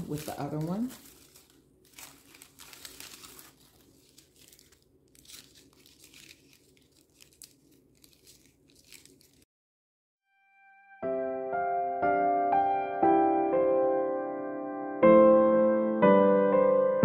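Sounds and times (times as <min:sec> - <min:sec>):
paper crinkling and rustling: 0:00.0 - 0:09.5.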